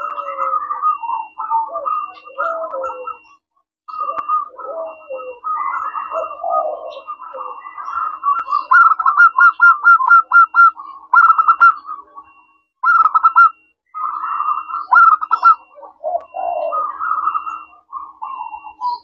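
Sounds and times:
dove staccato cooing: 0:00.0 - 0:19.0.

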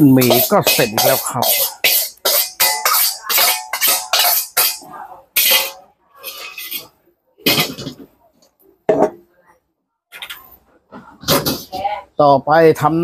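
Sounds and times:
metal spatula scraping a wok: 0:00.0 - 0:08.0.

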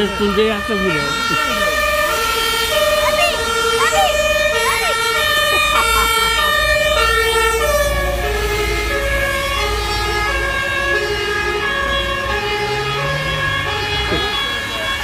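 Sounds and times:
fire engine two-tone siren: 0:00.0 - 0:15.0.

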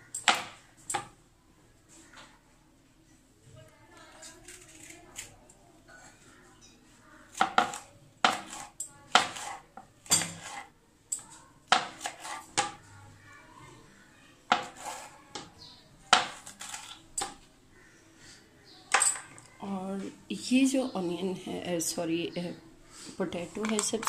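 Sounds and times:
knife chopping on wooden board: 0:07.4 - 0:09.6, 0:11.7 - 0:12.8, 0:14.5 - 0:15.1.

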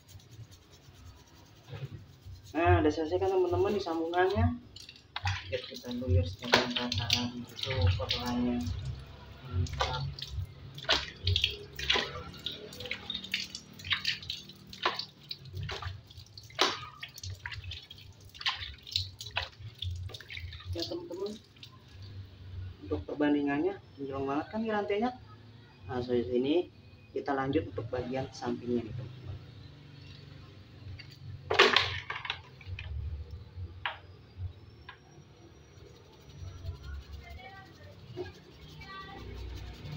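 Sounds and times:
water splashing and dripping: 0:00.0 - 0:22.5, 0:29.9 - 0:35.2, 0:35.8 - 0:39.9
objects clattering: 0:31.0 - 0:33.0.

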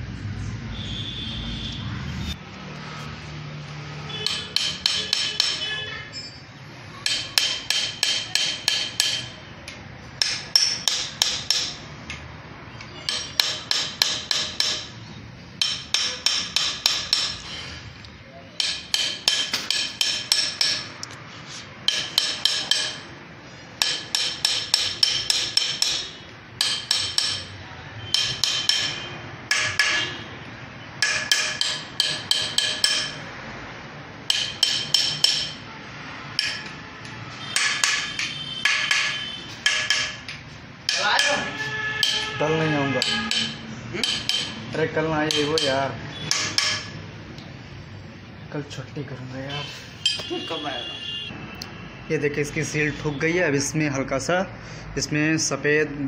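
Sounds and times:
hammer tapping metal: 0:03.9 - 0:06.0, 0:06.9 - 0:47.6, 0:49.5 - 0:51.3.

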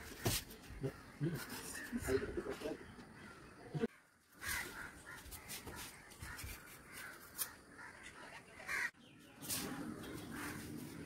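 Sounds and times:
crows cawing: 0:02.6 - 0:09.0, 0:10.3 - 0:11.0
bare feet scuffing on concrete: 0:05.0 - 0:07.5.

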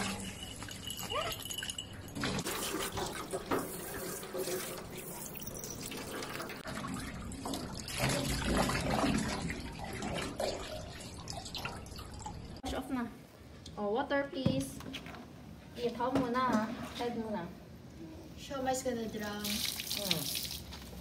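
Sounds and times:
hose water splashing into sink: 0:02.3 - 0:12.3, 0:19.3 - 0:20.7.

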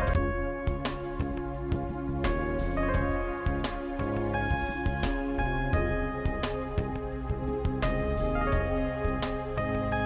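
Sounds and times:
instrumental music with held chords: 0:00.0 - 0:10.0.

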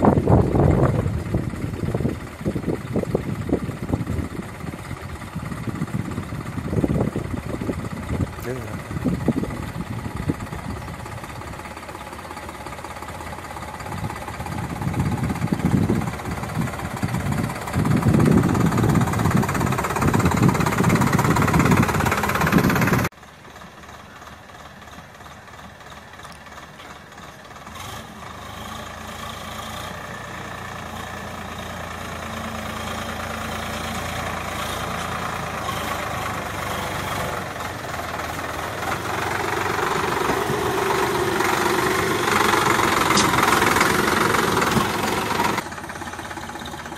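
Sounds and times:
wind buffeting: 0:00.0 - 0:11.7, 0:13.2 - 0:23.1
tractor diesel engine running: 0:00.0 - 0:46.9.

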